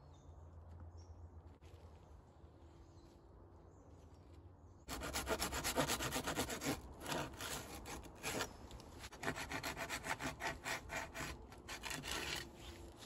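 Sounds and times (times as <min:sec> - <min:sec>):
rope rasping on bark pole: 0:04.9 - 0:13.0.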